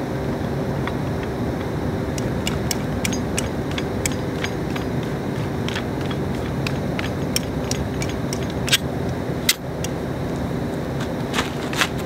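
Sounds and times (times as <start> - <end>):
steady low hum: 0.0 - 12.0
metallic clicks and clinks: 0.8 - 8.9.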